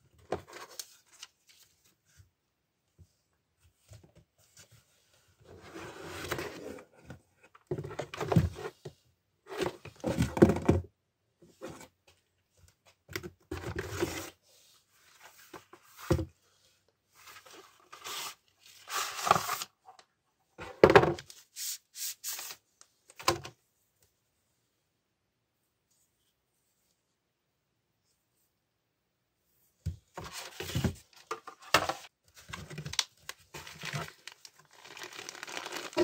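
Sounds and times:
cardboard rustling and scraping: 3.7s - 8.9s, 13.4s - 19.8s, 30.0s - 36.0s.

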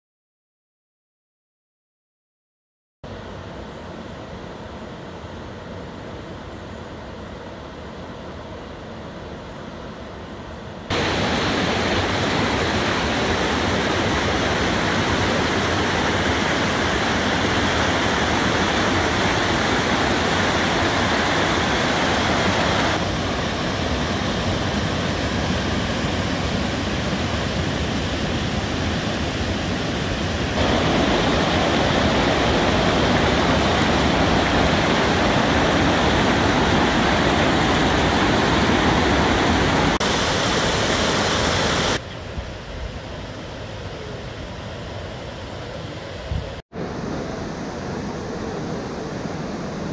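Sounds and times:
water rushing over a weir: 10.9s - 42.0s.

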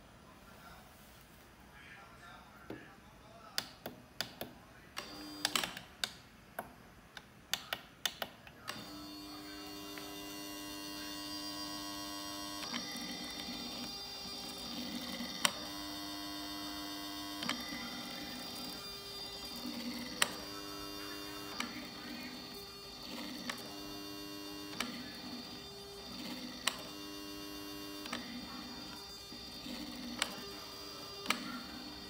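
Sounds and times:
steady hum of held tones: 8.6s - 32.0s.

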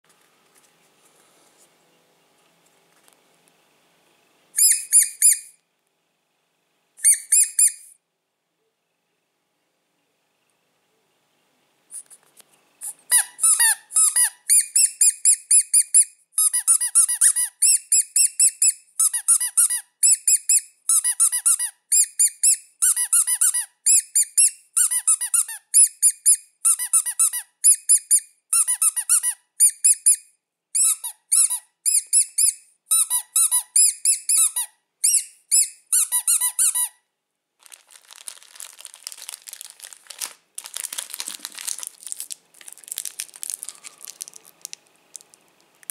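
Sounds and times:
high-pitched squeaks: 4.6s - 5.6s, 7.0s - 8.0s, 12.8s - 30.2s, 30.8s - 37.0s, 37.7s - 44.7s
candy wrappers crinkling: 37.6s - 45.9s.

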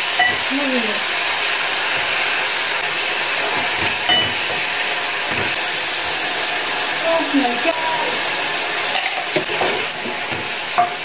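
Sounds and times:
small fish sizzling in a pot: 0.0s - 11.0s
wooden spoon scraping: 3.2s - 6.7s, 8.8s - 11.0s.

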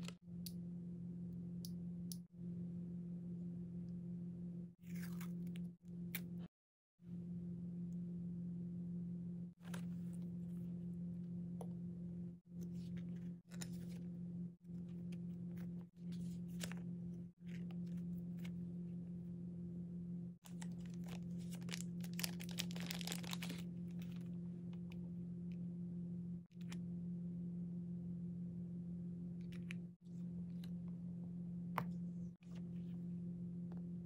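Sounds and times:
steady low hum: 0.0s - 34.0s
packaging rustling and crinkling: 20.5s - 24.3s.

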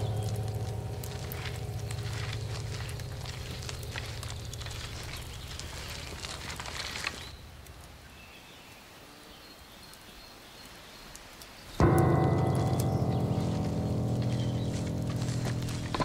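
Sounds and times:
low hum: 0.0s - 7.9s, 11.8s - 16.0s
crackling and rustling: 0.0s - 8.8s, 10.6s - 16.0s.

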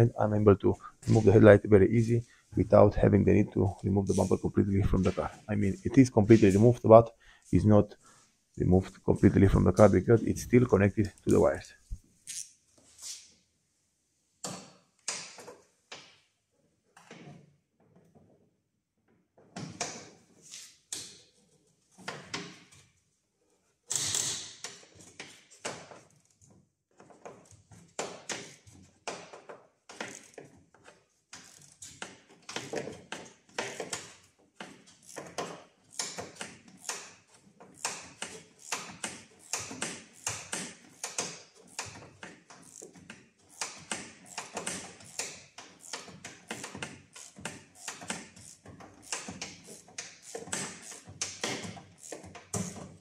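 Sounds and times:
hand ratchet clicking: 27.2s - 30.5s, 31.3s - 53.0s.

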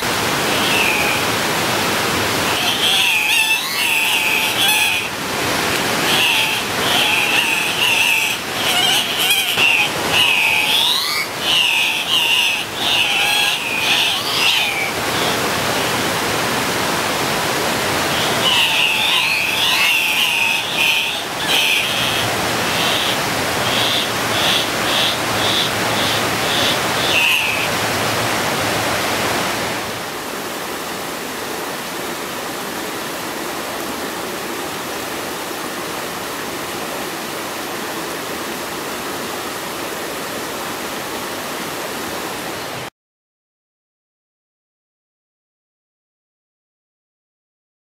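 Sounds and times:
stream rushing: 0.0s - 42.9s
birds giving harsh squawking calls: 6.1s - 15.3s, 18.2s - 27.7s.

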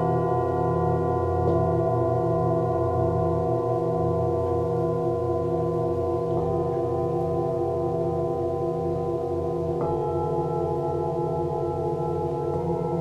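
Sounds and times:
singing bowls ringing: 0.0s - 13.0s
singing bowl struck softly: 6.0s - 13.0s.

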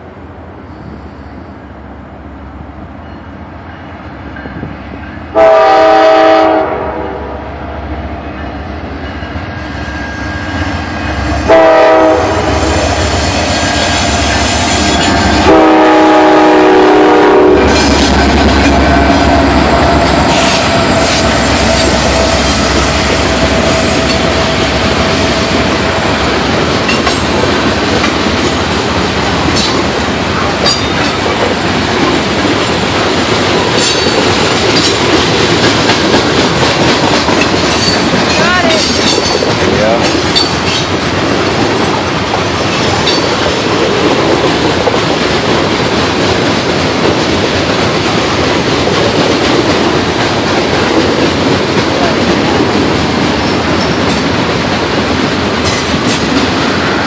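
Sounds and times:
diesel locomotives passing: 0.0s - 57.0s
locomotive air horn blasts: 5.3s - 7.4s, 11.4s - 17.8s
train wheels rolling and clattering: 12.3s - 57.0s.

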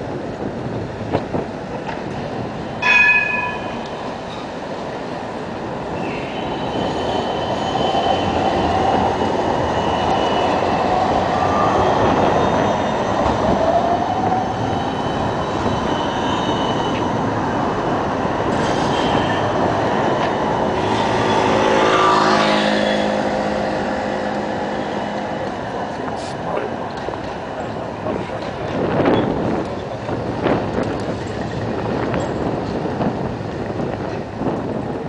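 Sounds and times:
tram rolling on street rails: 0.0s - 35.0s.

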